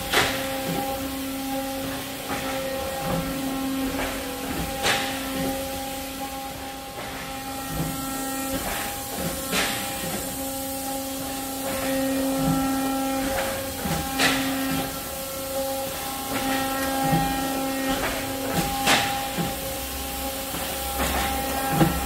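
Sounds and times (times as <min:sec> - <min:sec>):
machinery hum: 0:00.0 - 0:22.0.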